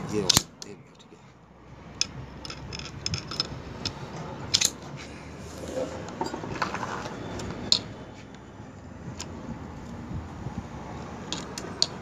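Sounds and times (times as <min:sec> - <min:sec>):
metal tool clicks and scrapes: 0:02.0 - 0:06.7.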